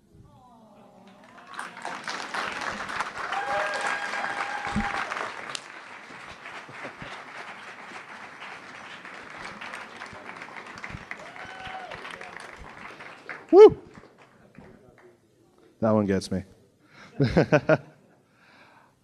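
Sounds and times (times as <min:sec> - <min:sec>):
audience applauding: 0:01.0 - 0:15.2
person cheering: 0:03.2 - 0:05.2, 0:11.2 - 0:12.1, 0:13.5 - 0:13.9.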